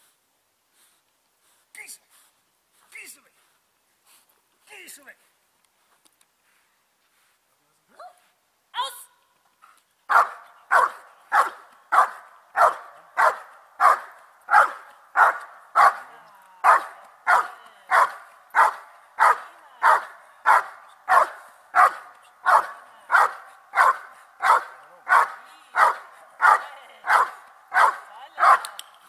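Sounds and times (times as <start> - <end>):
dog barking: 10.1 - 28.7.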